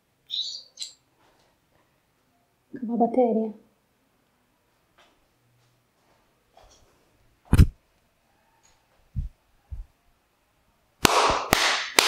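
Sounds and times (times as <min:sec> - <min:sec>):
soft low thumps: 0:09.1 - 0:09.9.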